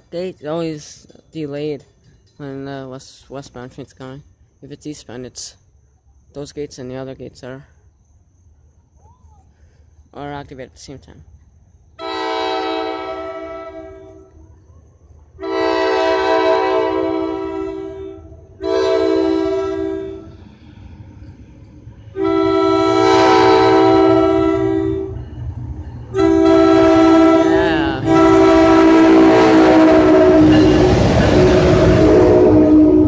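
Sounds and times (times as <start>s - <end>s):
passing train rumble: 0.0s - 33.0s
train air horn blasts: 12.0s - 14.4s, 15.4s - 20.4s, 22.1s - 25.3s, 26.1s - 33.0s.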